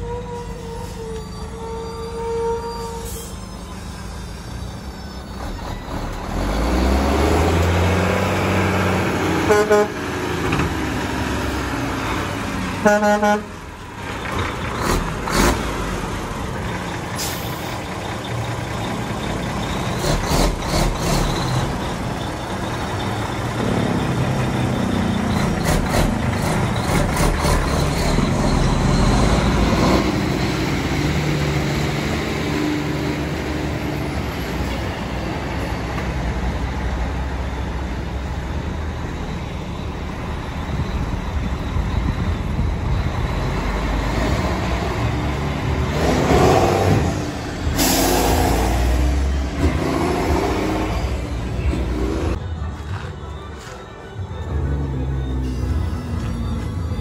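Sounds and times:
truck diesel engine under load: 0:00.0 - 0:57.0
truck horn toots: 0:09.2 - 0:10.2, 0:12.7 - 0:13.7.

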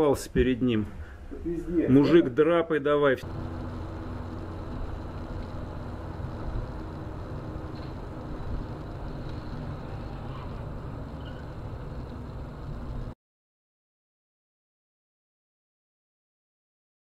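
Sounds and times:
car interior road noise: 0:03.2 - 0:13.2.

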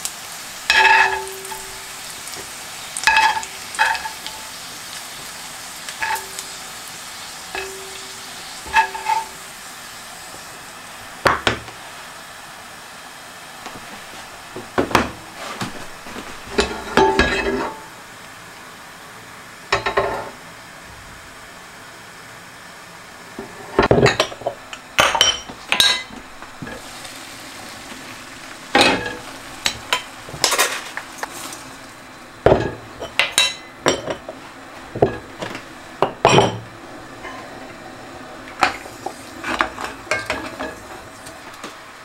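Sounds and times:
fat sizzling: 0:00.0 - 0:21.9, 0:22.8 - 0:42.0
metal utensil scraping a pan: 0:00.7 - 0:01.8, 0:07.6 - 0:09.4, 0:16.5 - 0:17.9.

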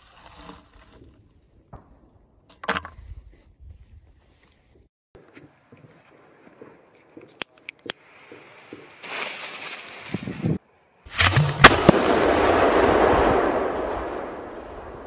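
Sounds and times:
firework fuse sputtering and hissing: 0:08.9 - 0:10.4
firework bangs: 0:11.1 - 0:15.0
firework crackling: 0:11.1 - 0:15.0.

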